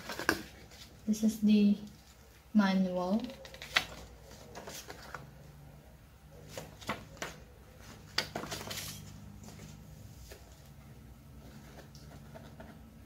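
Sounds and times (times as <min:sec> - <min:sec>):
paper rustling: 0:03.2 - 0:05.3, 0:06.4 - 0:10.8, 0:11.4 - 0:12.9.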